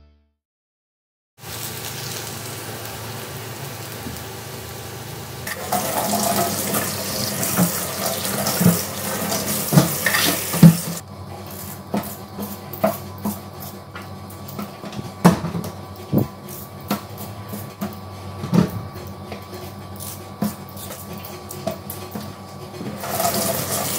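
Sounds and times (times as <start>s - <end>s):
potatoes washed under water: 5.5s - 11.0s, 22.9s - 23.9s
tap water running into metal sink: 5.5s - 11.0s, 22.9s - 23.9s.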